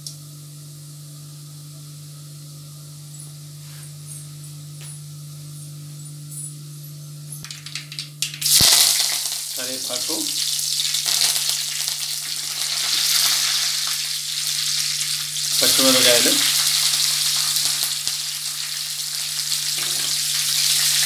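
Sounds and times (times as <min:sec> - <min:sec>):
leaves sizzling in hot oil: 0:07.5 - 0:21.0.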